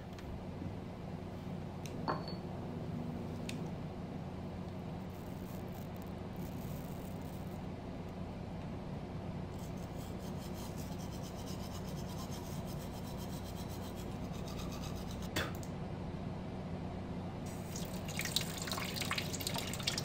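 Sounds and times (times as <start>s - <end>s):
steady low hum: 0.0s - 20.0s
toothbrush scrubbing teeth: 9.6s - 15.3s.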